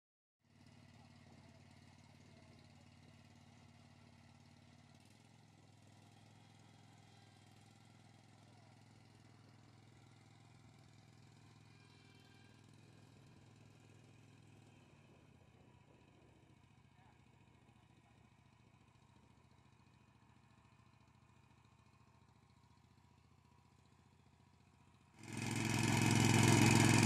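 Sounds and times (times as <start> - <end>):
mower petrol engine humming: 5.8 - 27.0.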